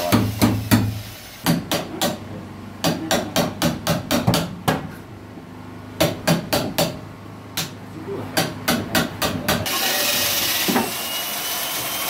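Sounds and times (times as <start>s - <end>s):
hammer striking wooden wall: 0.0s - 4.9s, 6.0s - 7.0s, 8.4s - 9.7s.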